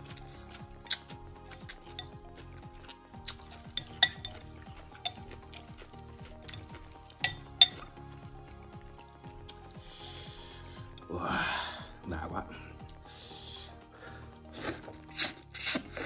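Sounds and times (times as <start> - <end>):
background music: 0.0 - 16.0
utensils clinking against bowl: 3.4 - 5.5, 6.5 - 7.9.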